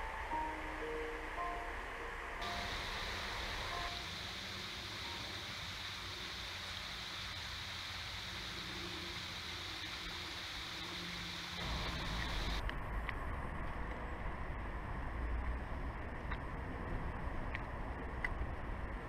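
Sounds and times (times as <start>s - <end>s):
river water flowing: 0.0s - 12.6s
distant city traffic rumble: 0.0s - 19.0s.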